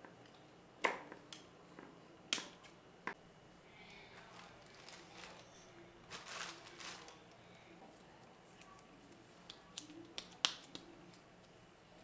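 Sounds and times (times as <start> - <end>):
leaves and stems rustling: 4.2 - 7.3.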